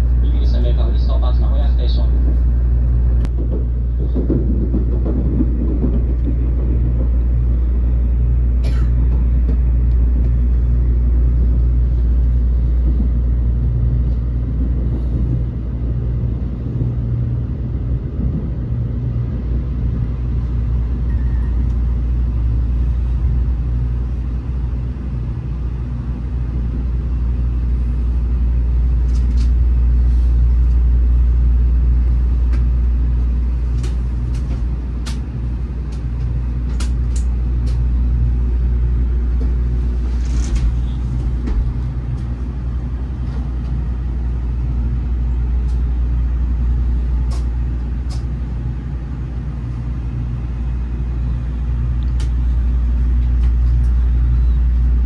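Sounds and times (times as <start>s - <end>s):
train rumbling inside passenger car: 0.0s - 55.0s.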